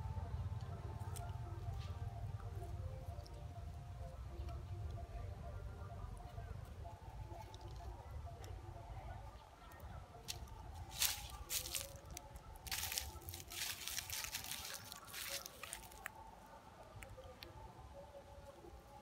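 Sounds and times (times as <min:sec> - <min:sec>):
dry leaves crackling and rustling: 0:09.6 - 0:16.4.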